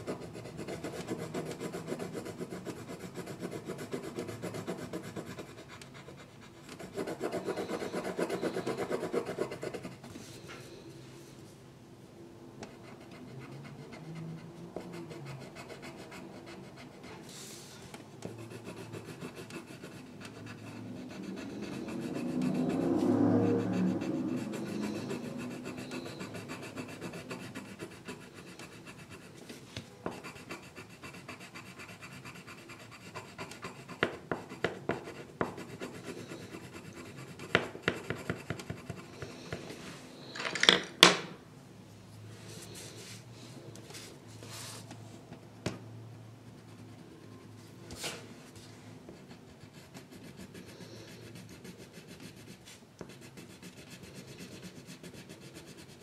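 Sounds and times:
drawing tool scratching paper: 0.0s - 10.4s, 12.7s - 39.7s, 49.1s - 56.0s
low swell of sound: 20.8s - 25.6s.

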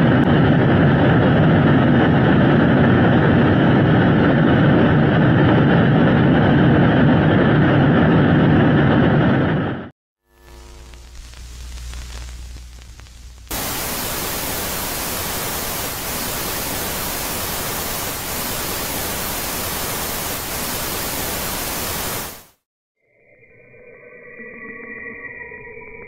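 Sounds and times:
static hiss: 10.2s - 22.6s
quiet low rumble: 10.3s - 14.1s.

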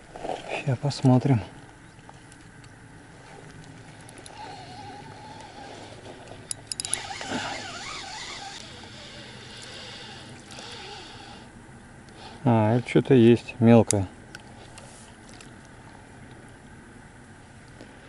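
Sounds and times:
reel clicks: 2.0s - 12.2s
fishing reel whirring: 3.2s - 11.6s.

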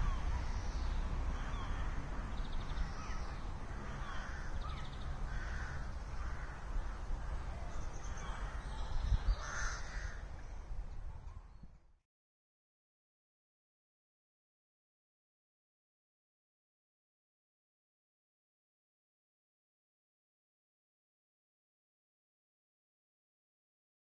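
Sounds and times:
wind rumble on microphone: 0.0s - 12.0s
crows cawing: 1.3s - 2.1s, 2.8s - 7.4s, 8.2s - 10.4s.

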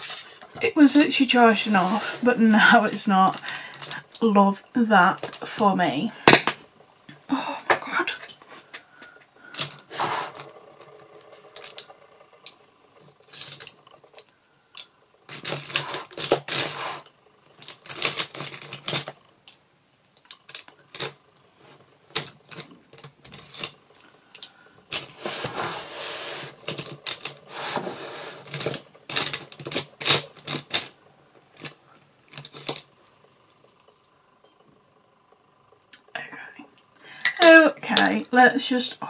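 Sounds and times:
small hard objects clicking and clattering: 17.5s - 19.6s, 20.2s - 21.2s.

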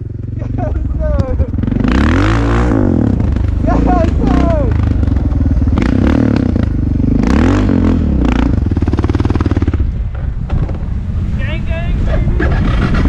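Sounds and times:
off-road vehicle engine revving: 0.0s - 10.1s, 10.7s - 13.0s
clattering knocks from bumps: 10.1s - 10.9s.

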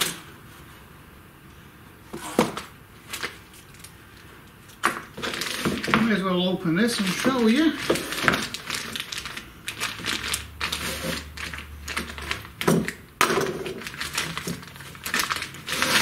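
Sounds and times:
plastic packaging crinkling: 3.0s - 16.0s.

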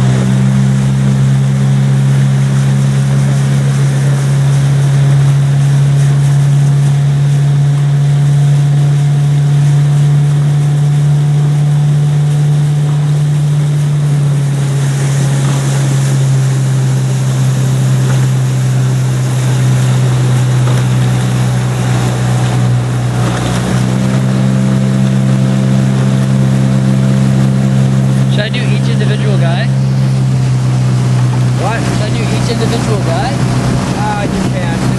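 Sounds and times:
outboard motor running: 0.0s - 34.9s.

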